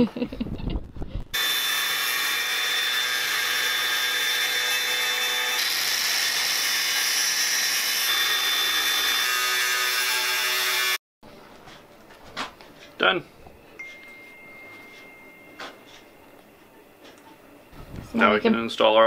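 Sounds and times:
angle grinder cutting metal: 1.4 - 11.0.

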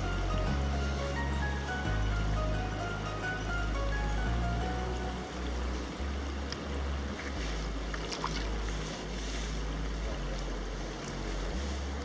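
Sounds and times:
fish splashing in water: 7.0 - 12.0.

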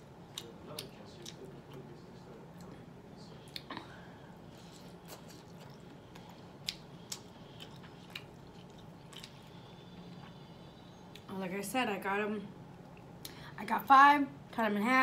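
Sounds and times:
person chewing: 0.3 - 1.8, 4.4 - 11.3.

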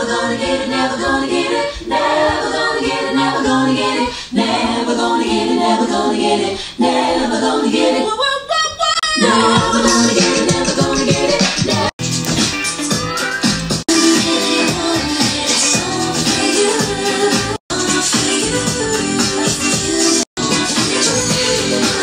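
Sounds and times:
person singing unaccompanied: 0.0 - 11.9.

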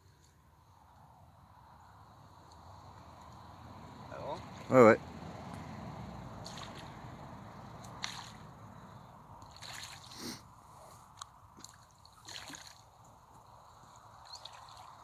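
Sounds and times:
fish splashing in water: 6.4 - 7.1, 7.8 - 8.5, 9.4 - 10.2, 11.6 - 13.0, 14.2 - 15.0.

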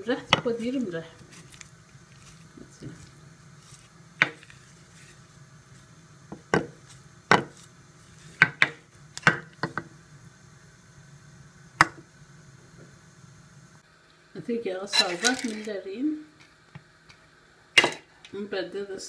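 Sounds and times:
spoon knocking on baking dish: 6.3 - 7.5.

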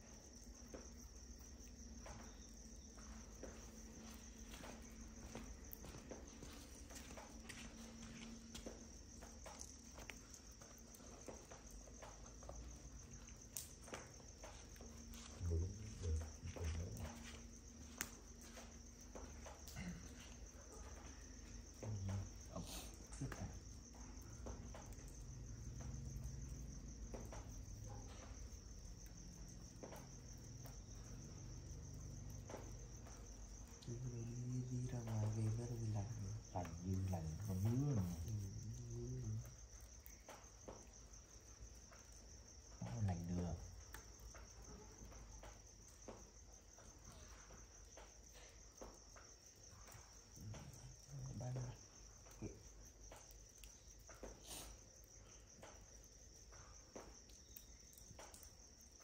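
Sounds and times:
night insects chirping: 0.0 - 59.0.

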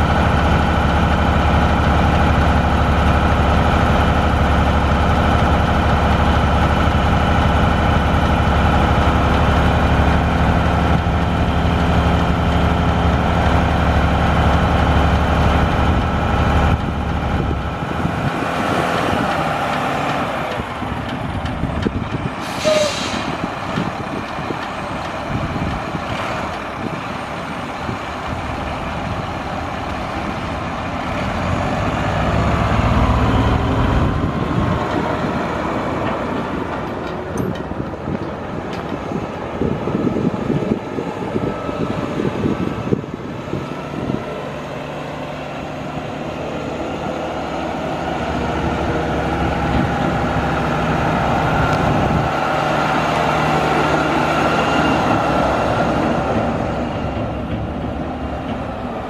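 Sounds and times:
diesel truck engine rumbling: 0.0 - 59.0
air brake hiss: 22.4 - 23.4.

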